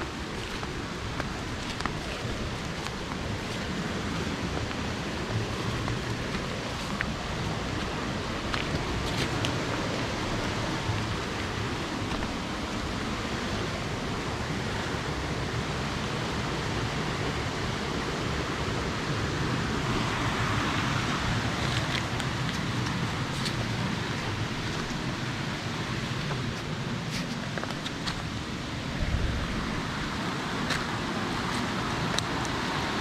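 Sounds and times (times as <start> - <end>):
river water rushing: 0.0 - 33.0.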